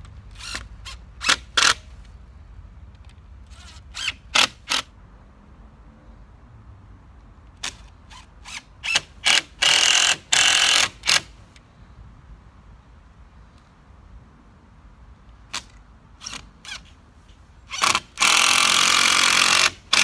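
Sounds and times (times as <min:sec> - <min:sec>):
cordless drill whining: 0:17.7 - 0:20.0.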